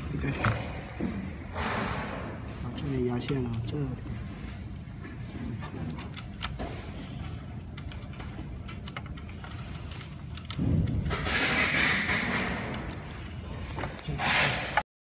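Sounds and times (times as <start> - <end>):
rustling scrape of wiring: 11.0 - 13.4.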